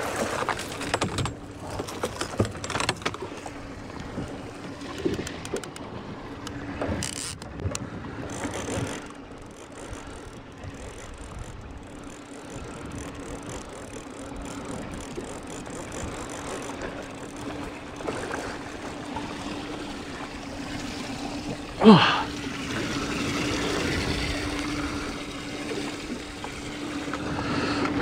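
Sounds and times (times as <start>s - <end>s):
outboard motor humming: 0.0s - 28.0s
water noise: 0.0s - 28.0s
wind: 0.0s - 28.0s
fishing reel cranking: 6.4s - 19.9s, 22.7s - 28.0s.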